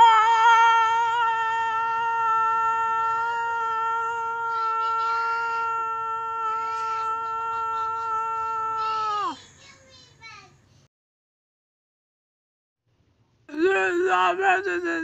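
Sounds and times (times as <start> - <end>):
person singing long high note: 0.0 - 9.4, 13.5 - 15.0.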